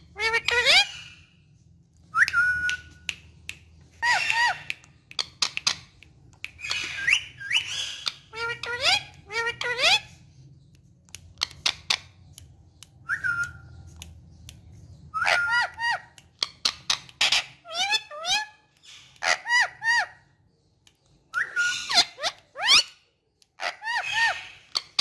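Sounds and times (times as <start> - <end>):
parakeet soft clicks: 2.2 - 8.2, 10.7 - 14.9
parakeet whistling: 6.5 - 10.1, 21.4 - 22.9.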